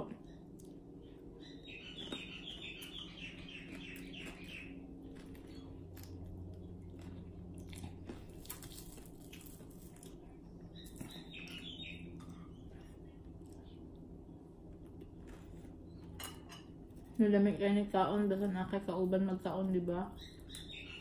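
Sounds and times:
low hum: 0:00.0 - 0:21.0
high twittering chirp: 0:00.2 - 0:05.7, 0:10.6 - 0:12.8, 0:20.1 - 0:21.0
chewing crunchy fried fish: 0:01.7 - 0:16.2.

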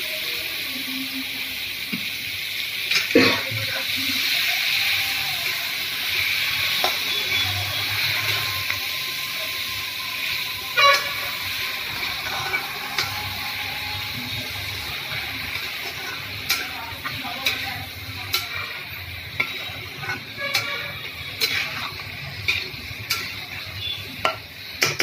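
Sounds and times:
meat sizzling in oil: 0:00.0 - 0:25.0.

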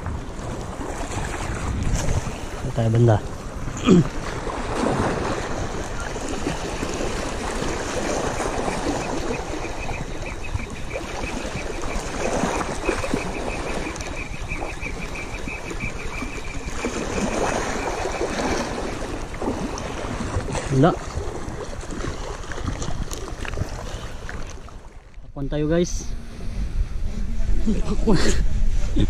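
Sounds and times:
wind on microphone: 0:00.0 - 0:29.0
small waves lapping over rocks: 0:04.0 - 0:10.3, 0:10.9 - 0:25.2.

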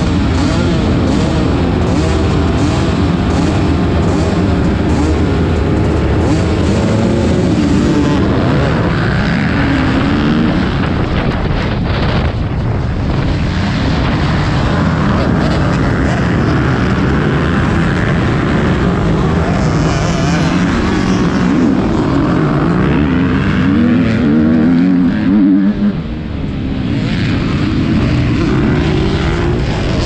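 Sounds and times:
motorbike engine revving: 0:00.0 - 0:30.0
wind buffeting microphone: 0:09.6 - 0:15.8.

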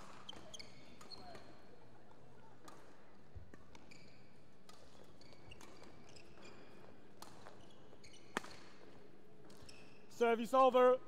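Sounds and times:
shoes squeaking on court: 0:00.0 - 0:01.7, 0:03.5 - 0:10.1.

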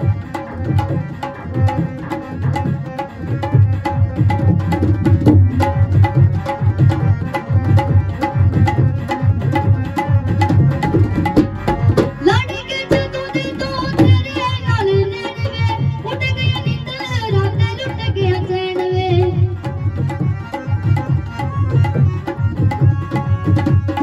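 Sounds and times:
tabla playing a fast beat: 0:00.0 - 0:24.0
woman singing: 0:12.2 - 0:19.6.

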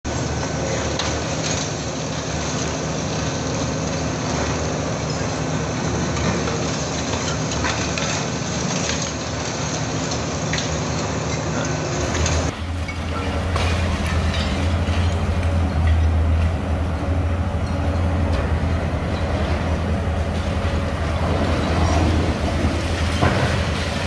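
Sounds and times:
diesel excavator engine: 0:00.0 - 0:24.0
concrete cracking and crunching: 0:06.0 - 0:16.8.

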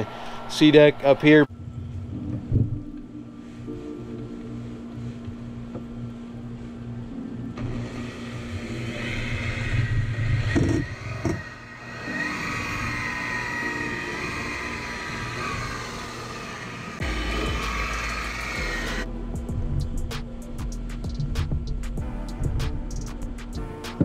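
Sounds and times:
polisher motor running: 0:07.6 - 0:19.1.

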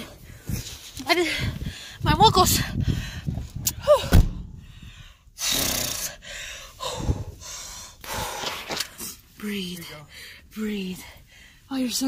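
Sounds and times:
thump: 0:04.1 - 0:04.5.

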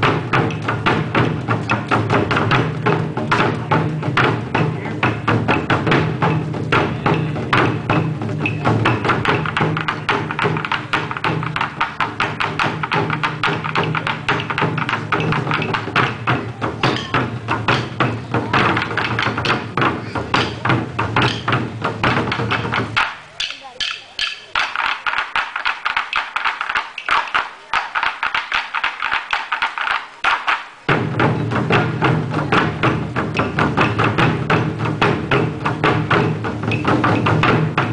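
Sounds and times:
deep drum boom: 0:00.0 - 0:23.1, 0:30.9 - 0:37.9
taiko drums sharp strikes: 0:00.0 - 0:37.9.

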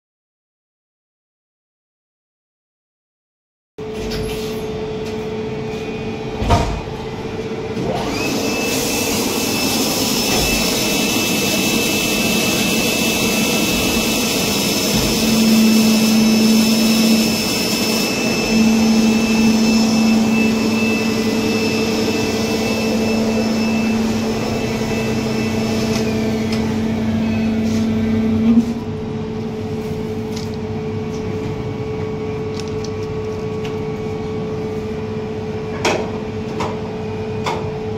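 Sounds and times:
workshop machinery humming: 0:03.8 - 0:37.9
high motor whine: 0:04.7 - 0:32.7
lower hum: 0:09.2 - 0:35.7.

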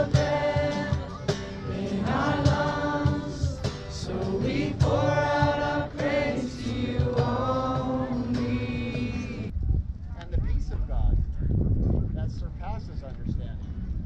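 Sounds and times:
group singing worship song: 0:00.0 - 0:09.5.

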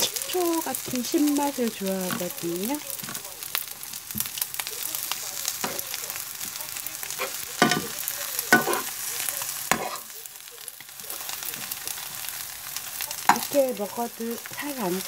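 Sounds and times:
rice sizzling in a hot pan: 0:00.0 - 0:15.0
metal spoon scraping a pan: 0:04.8 - 0:10.1, 0:10.8 - 0:15.0.

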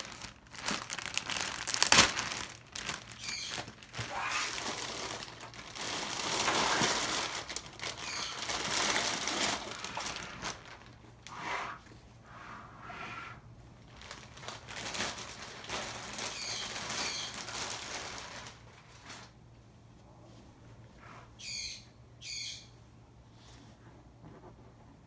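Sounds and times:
high warbling bird chirps: 0:03.2 - 0:03.6, 0:08.0 - 0:08.4, 0:21.4 - 0:22.8.

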